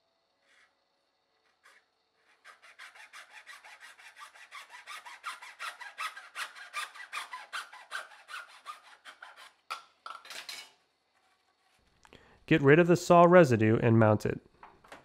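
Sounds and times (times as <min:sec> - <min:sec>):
hacksaw cutting plastic tube: 0:01.4 - 0:09.8.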